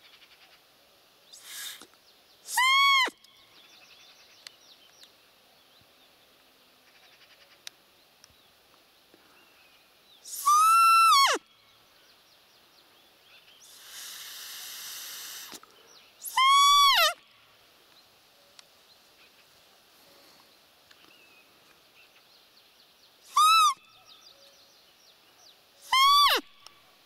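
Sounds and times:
steady hiss: 0.0s - 23.9s
squeaky deer call peeps: 1.4s - 1.9s, 2.5s - 3.2s, 10.3s - 11.4s, 16.2s - 17.2s, 23.3s - 23.9s, 25.8s - 26.6s.

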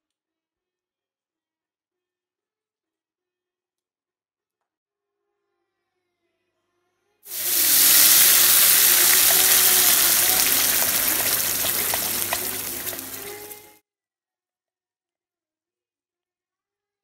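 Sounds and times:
paste sizzling in hot oil: 7.3s - 13.8s.

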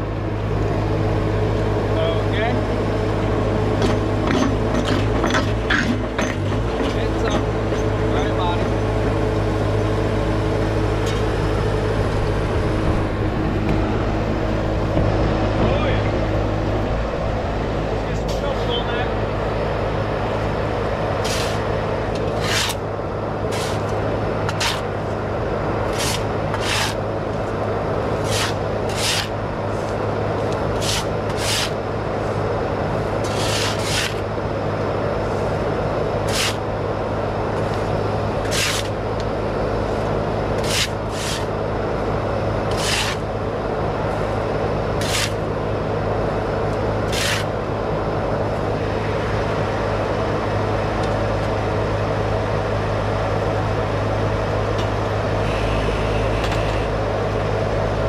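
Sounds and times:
skid steer engine running: 0.0s - 58.0s
shovel scraping dirt: 21.2s - 22.8s, 23.5s - 24.9s, 25.9s - 27.0s, 28.2s - 31.8s, 33.2s - 34.2s, 36.2s - 36.6s, 38.4s - 39.0s, 40.6s - 41.5s, 42.7s - 43.3s, 45.0s - 45.4s, 47.0s - 47.5s.

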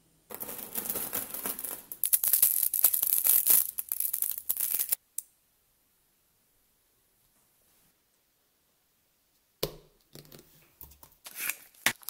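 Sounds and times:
magnetic balls clicking and rattling: 0.3s - 5.0s.

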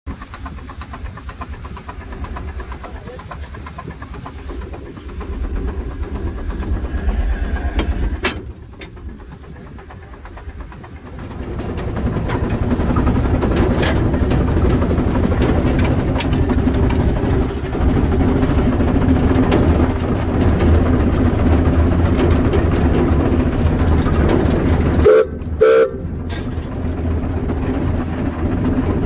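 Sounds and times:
hissing steam: 0.1s - 26.1s
steam engine exhaust beats: 0.1s - 29.0s
low rumble: 2.0s - 29.0s.

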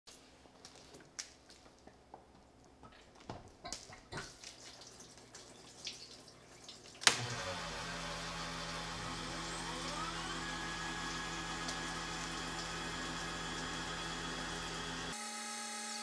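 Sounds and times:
coolant dripping and splashing on metal: 3.2s - 7.2s, 9.8s - 12.9s
milling machine humming and whining: 7.2s - 16.0s.

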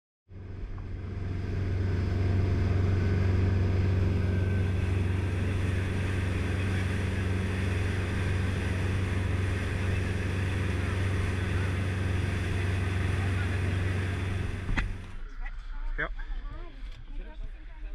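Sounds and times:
boat engine drone: 0.3s - 15.4s
water rushing along hull: 1.5s - 15.0s.

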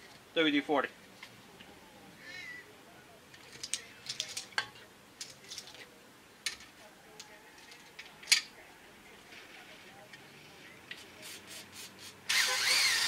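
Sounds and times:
tools clicking and clattering on metal: 3.3s - 8.6s.

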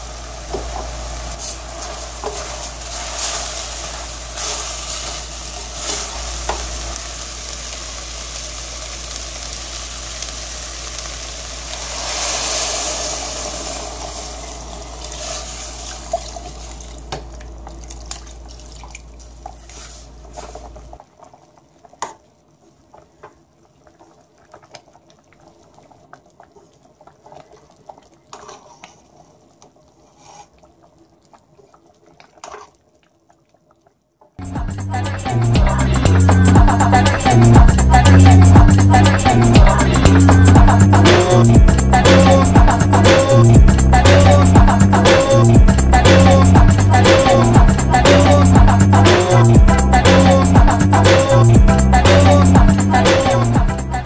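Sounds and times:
food sizzling in a wok: 0.0s - 17.2s
spatula stirring and scraping: 19.4s - 20.8s, 28.3s - 29.2s, 30.0s - 30.6s.

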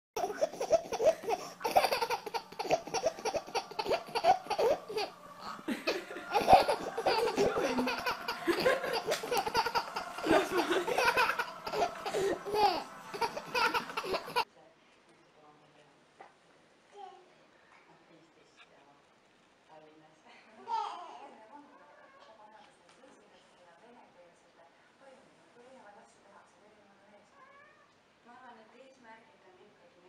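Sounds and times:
baby laughing: 0.2s - 14.4s.

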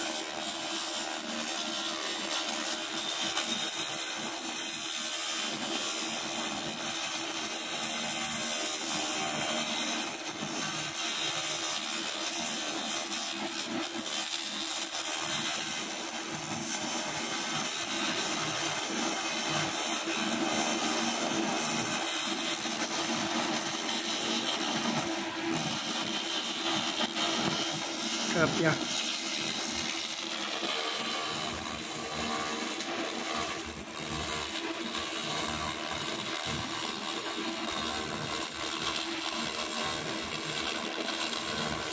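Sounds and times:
laser cleaner hissing: 19.0s - 40.5s.

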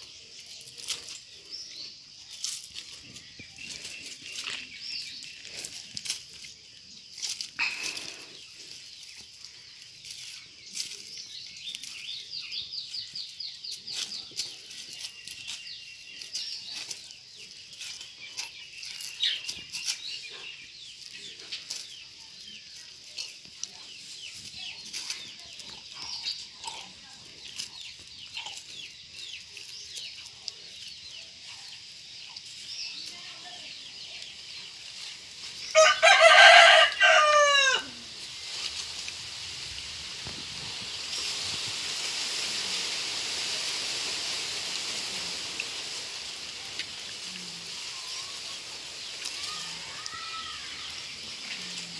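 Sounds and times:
rooster crowing: 35.8s - 38.0s.

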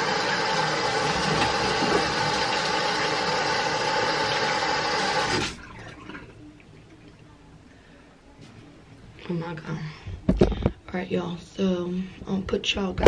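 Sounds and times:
tap running into sink: 1.0s - 2.7s.

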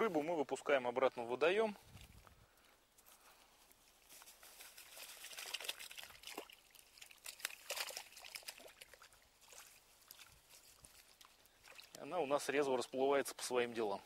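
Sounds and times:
water splashing and trickling: 3.8s - 13.8s.

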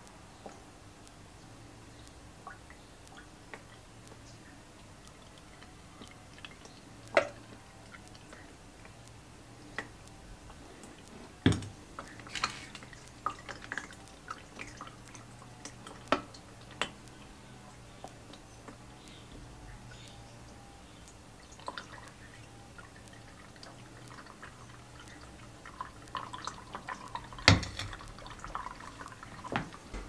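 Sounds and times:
oil dripping into plastic jug: 11.5s - 17.2s, 21.4s - 30.0s.

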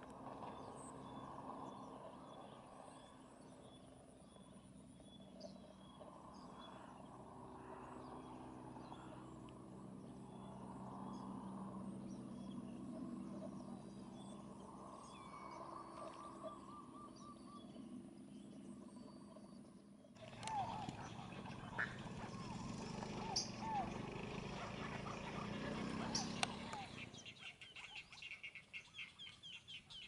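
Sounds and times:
steady low hum: 0.0s - 27.2s
birds chirping: 0.2s - 30.0s
warbling bird call: 15.1s - 17.8s, 20.2s - 30.0s.

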